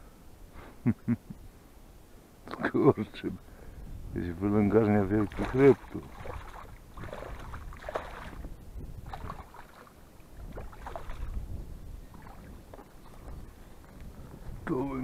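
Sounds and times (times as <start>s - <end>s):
water splashing: 4.7s - 14.0s
footsteps through wet grass: 5.0s - 14.6s.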